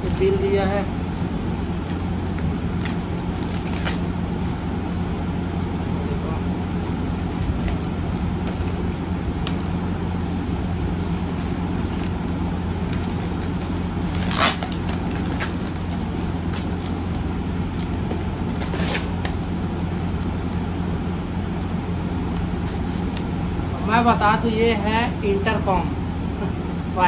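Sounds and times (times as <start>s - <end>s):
low hum: 0.0s - 27.0s
cardboard packaging rustling: 1.7s - 5.4s, 6.8s - 20.4s
cardboard crackle: 1.8s - 4.6s, 7.2s - 9.8s, 10.6s - 20.4s.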